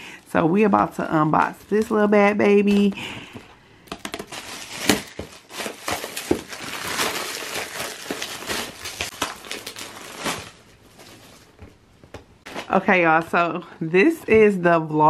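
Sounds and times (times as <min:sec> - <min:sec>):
gift wrap tearing and crinkling: 0:03.9 - 0:11.6.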